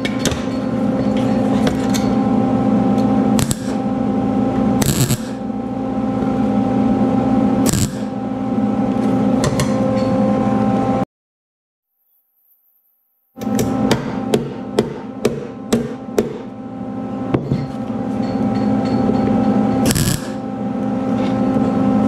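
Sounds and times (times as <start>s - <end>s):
steady machine hum: 0.0s - 11.1s, 13.4s - 22.0s
welding arc crackles: 3.4s - 3.8s, 4.8s - 5.4s, 7.7s - 8.1s, 19.9s - 20.4s.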